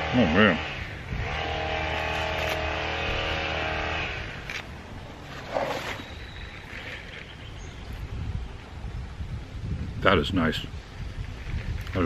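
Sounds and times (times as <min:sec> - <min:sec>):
engine running: 0:00.0 - 0:07.4.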